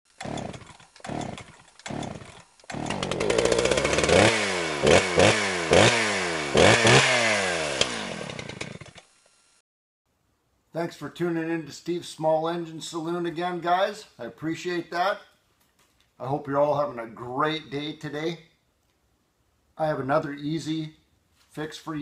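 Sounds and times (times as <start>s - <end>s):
chainsaw engine revving: 0.1s - 9.6s.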